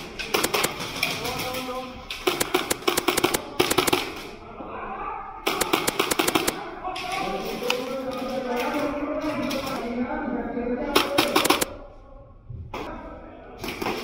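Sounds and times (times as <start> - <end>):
airsoft gun full-auto bursts: 2.2 - 4.1, 5.5 - 6.6, 11.0 - 11.7.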